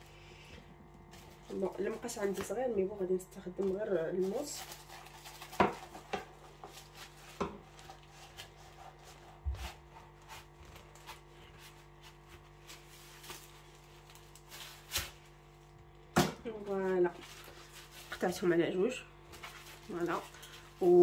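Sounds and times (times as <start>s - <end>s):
paper rustling: 3.6s - 15.5s, 16.6s - 18.5s, 19.3s - 21.0s
knife sawing through pastry sheets: 3.9s - 15.2s, 16.9s - 18.5s.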